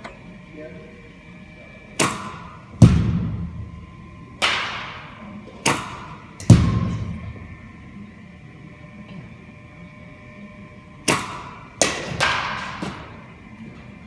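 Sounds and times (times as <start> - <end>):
bat striking softball: 2.0 - 3.3, 4.4 - 7.3, 11.0 - 13.4
balls thudding into net: 11.1 - 13.2.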